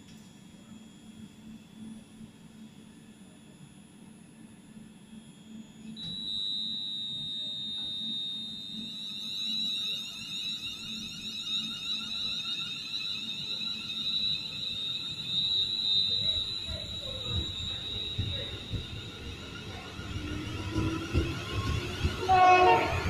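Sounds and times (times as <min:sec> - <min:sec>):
electric train whining: 0:05.6 - 0:23.0.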